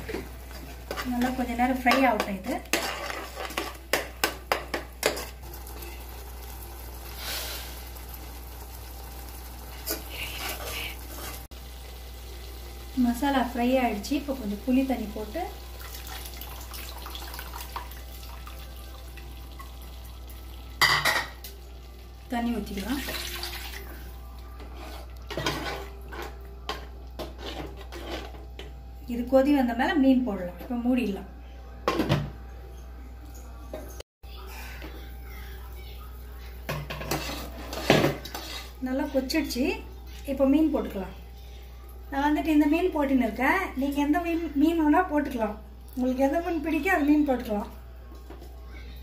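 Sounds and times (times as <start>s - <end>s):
ladle scraping and knocking pot: 36.8s - 38.8s.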